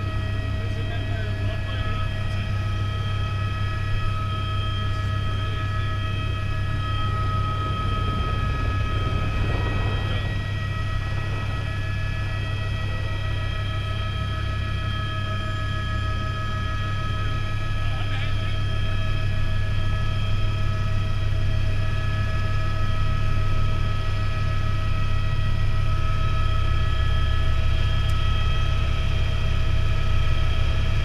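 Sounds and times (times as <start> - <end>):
helicopter rotor and engine drone: 0.0 - 31.0
high whining tones: 2.9 - 15.5.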